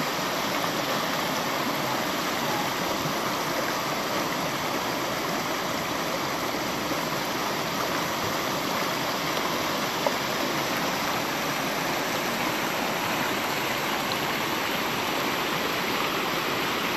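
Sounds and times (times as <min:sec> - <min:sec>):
stream rushing over rocks: 0:00.0 - 0:16.9.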